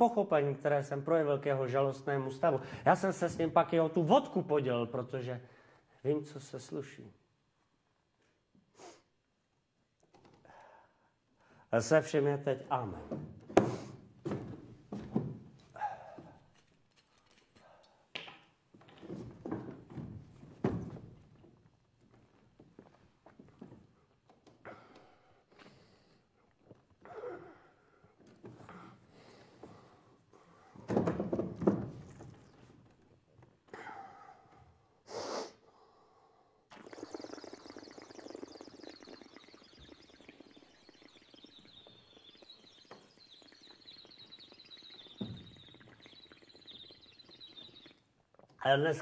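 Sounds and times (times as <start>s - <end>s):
man gasping and exhaling: 10.4s - 11.7s, 15.7s - 16.5s, 24.6s - 26.4s, 27.0s - 30.9s, 33.7s - 36.6s.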